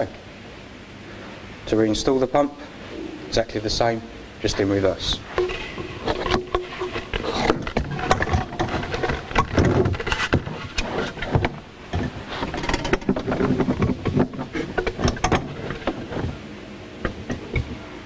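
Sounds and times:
pump clunking and scraping: 0:05.2 - 0:16.4.

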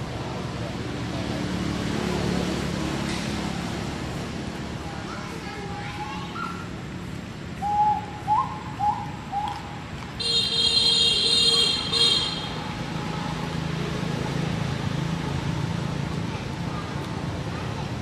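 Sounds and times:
low hum of traffic: 0:00.0 - 0:18.0
vehicle horn: 0:10.2 - 0:12.6.

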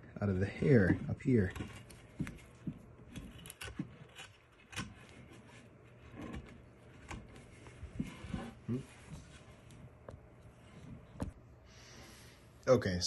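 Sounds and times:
knife scraping wood: 0:00.5 - 0:09.4.

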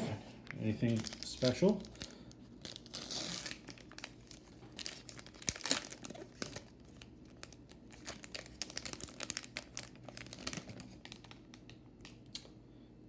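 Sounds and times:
foil wrapper crinkling and tearing: 0:00.5 - 0:12.4.

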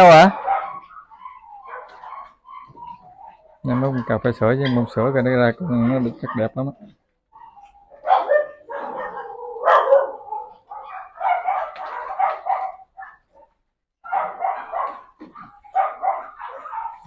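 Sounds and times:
puppies barking: 0:00.0 - 0:17.0.

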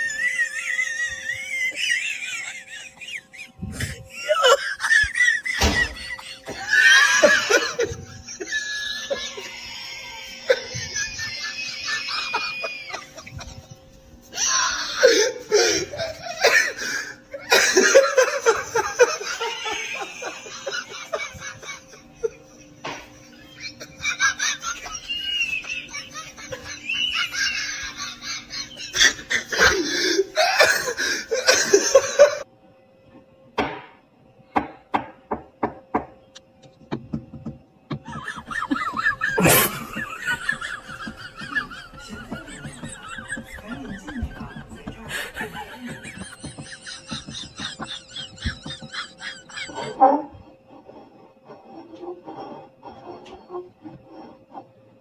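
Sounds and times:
bursts of laughter: 0:23.2 - 0:32.4, 0:38.0 - 0:50.0.

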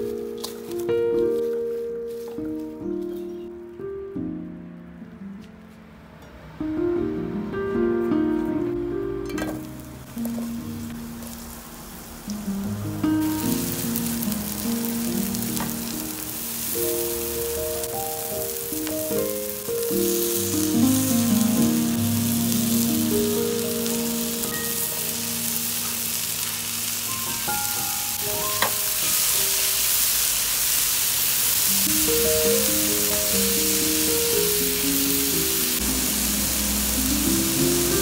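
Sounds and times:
food sizzling in hot oil: 0:09.6 - 0:38.0
background music: 0:12.7 - 0:28.9, 0:31.9 - 0:38.0.

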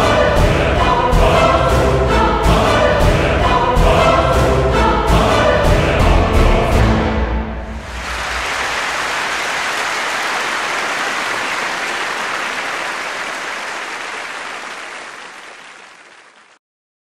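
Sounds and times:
audience applause: 0:07.8 - 0:16.6.

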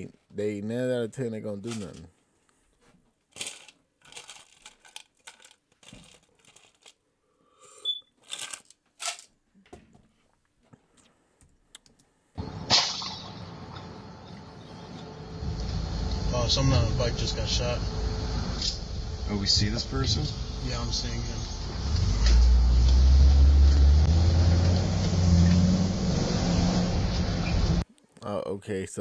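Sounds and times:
small clicks and crinkling: 0:01.6 - 0:07.0, 0:08.2 - 0:12.1
road and engine noise in cab: 0:12.4 - 0:27.8.

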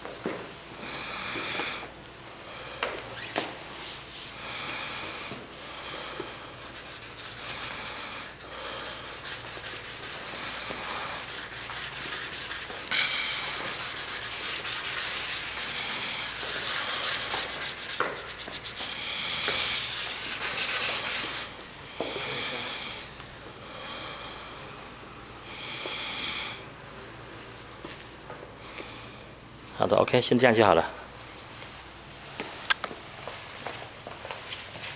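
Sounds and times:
abrasive pad scrubbing metal: 0:06.6 - 0:21.6.

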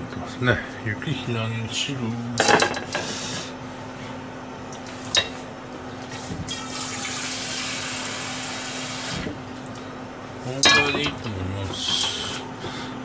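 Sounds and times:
pan clattering: 0:10.6 - 0:12.2.

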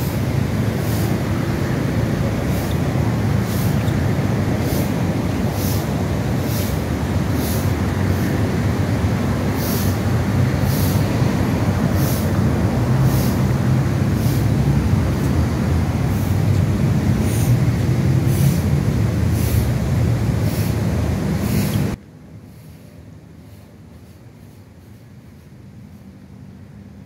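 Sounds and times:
low outdoor rumble: 0:00.0 - 0:27.0.

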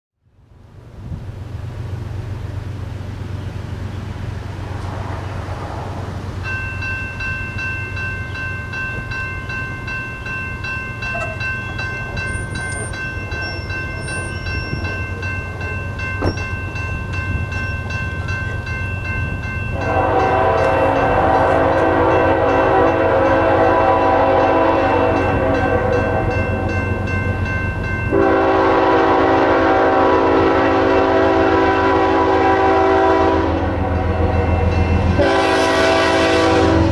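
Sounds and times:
crossing bell ringing: 0:06.3 - 0:36.9
locomotive air horn chord: 0:19.7 - 0:26.7, 0:28.1 - 0:36.9.

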